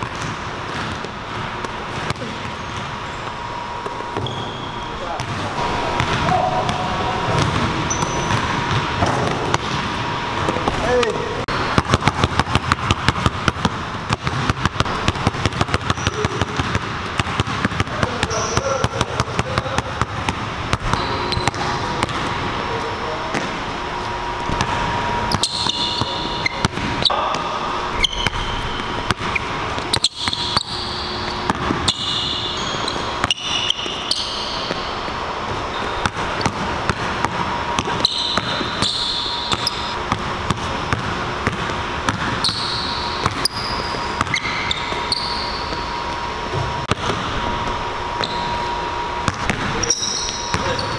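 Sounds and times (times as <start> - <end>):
sneaker squeaks: 0.0 - 12.2, 15.2 - 50.9
basketball dribbling on hardwood: 11.8 - 18.3.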